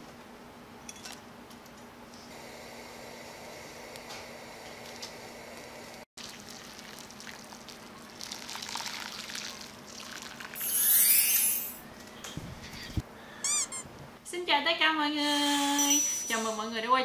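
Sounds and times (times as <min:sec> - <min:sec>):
gas burner hum: 0:02.2 - 0:06.1
broth pouring into a bowl: 0:06.2 - 0:11.1.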